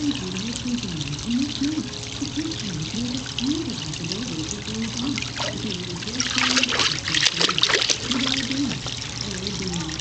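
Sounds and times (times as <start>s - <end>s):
water sloshing in a pool: 0.0s - 10.0s
dog splashing in water: 5.2s - 8.9s.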